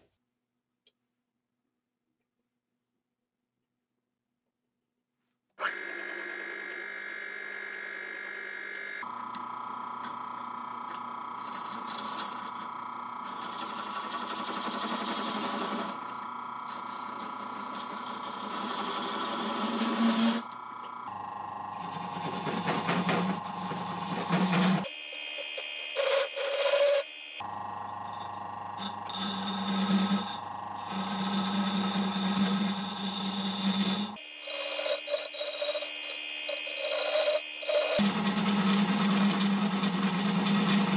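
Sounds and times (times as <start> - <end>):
drill press motor humming: 5.6 - 40.9
tool scraping turning wood: 10.0 - 21.0, 21.7 - 40.9.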